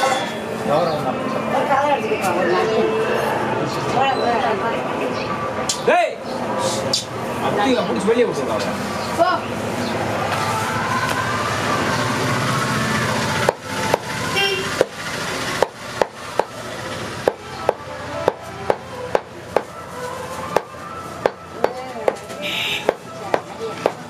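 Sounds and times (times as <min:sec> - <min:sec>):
cleaver chopping meat on wood: 0:13.4 - 0:14.1, 0:14.8 - 0:15.0, 0:15.6 - 0:16.6, 0:17.2 - 0:19.7, 0:22.8 - 0:24.0.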